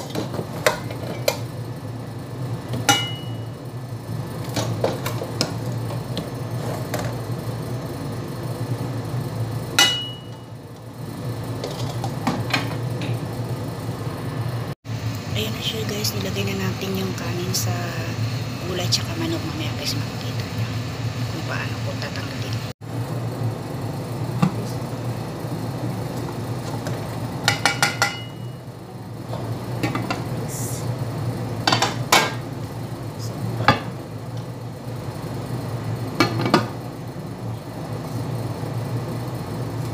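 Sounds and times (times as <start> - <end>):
steady low hum: 0.0 - 39.9
sharp knocks with metallic ring: 2.9 - 3.4, 9.8 - 10.3.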